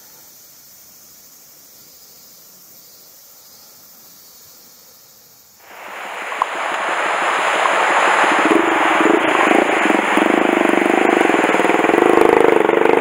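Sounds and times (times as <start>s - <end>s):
faint steady hiss: 0.0s - 12.9s
mountain stream rushing: 5.6s - 13.0s.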